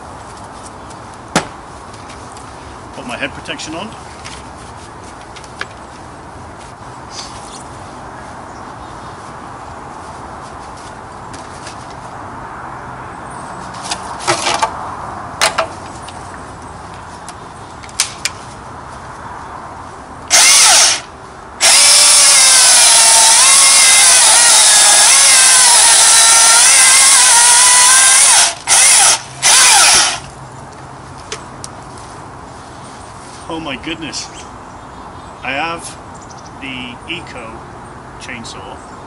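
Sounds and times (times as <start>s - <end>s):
chainsaw motor cutting log: 20.3s - 30.3s.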